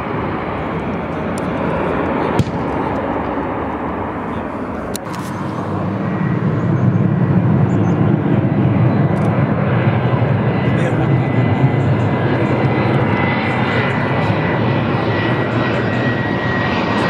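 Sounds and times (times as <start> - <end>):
jet airliner passing low overhead: 0.0 - 17.0
jet engines at takeoff power: 0.0 - 17.0.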